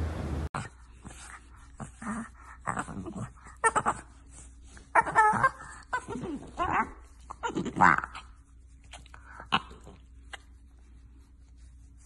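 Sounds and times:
puppy whining and grumbling: 1.9 - 8.4.

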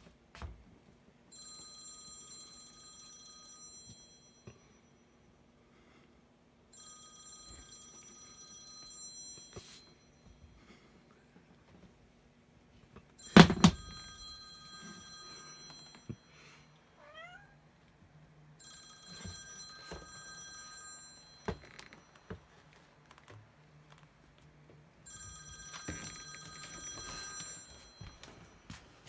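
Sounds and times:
phone ringtone: 1.3 - 5.3, 6.7 - 10.8, 13.2 - 17.5, 18.6 - 22.8, 25.0 - 28.9
phone thudding on wooden floor: 13.4 - 13.9.

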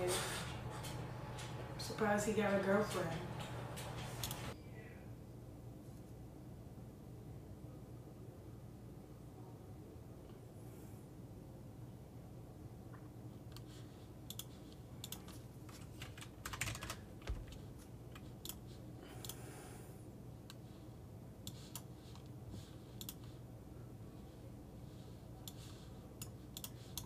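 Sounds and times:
keyboard typing: 0.0 - 4.6, 14.3 - 19.4, 22.9 - 23.4, 25.4 - 27.0
low steady hum: 0.0 - 27.0.

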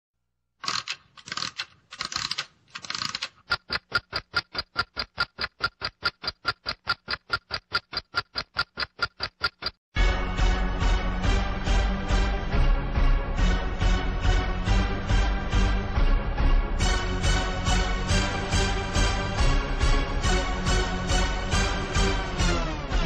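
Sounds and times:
sharp evenly spaced clicks: 0.6 - 9.8
music: 10.0 - 23.0.

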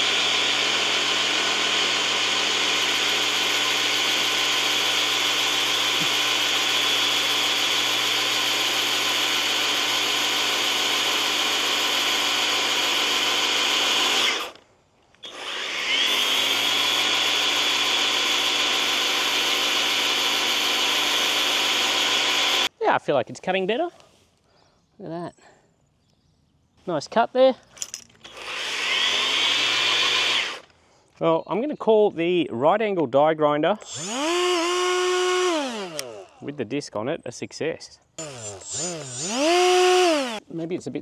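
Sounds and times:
electric grass trimmer whine: 0.0 - 14.6, 15.2 - 22.7, 28.2 - 30.7, 33.8 - 36.4, 38.2 - 40.4.

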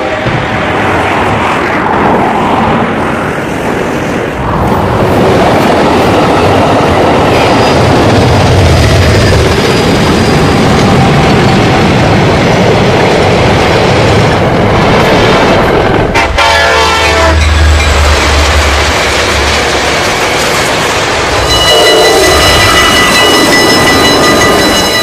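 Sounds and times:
train wheels rumbling on rails: 0.0 - 25.0
train horn: 16.1 - 17.7, 21.5 - 23.3.

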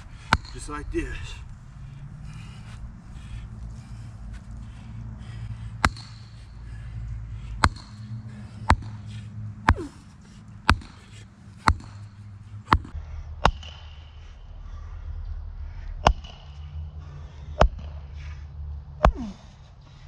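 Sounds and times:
sledgehammer striking wooden stake: 0.2 - 0.8, 5.8 - 6.5, 7.6 - 14.0, 16.0 - 16.6, 19.0 - 19.4.

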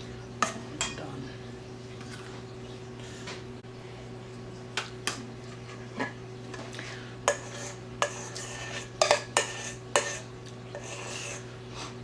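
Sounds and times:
spoon scraping metal bowl: 7.2 - 11.5.

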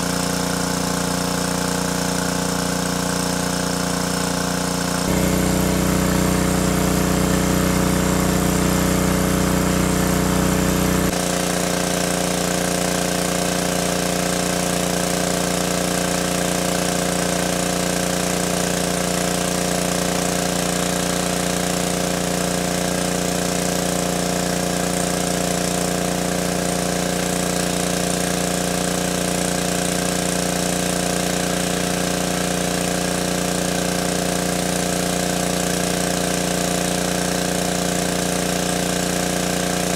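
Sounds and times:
water pump engine running: 0.0 - 39.9
water jet spraying: 3.2 - 17.2.

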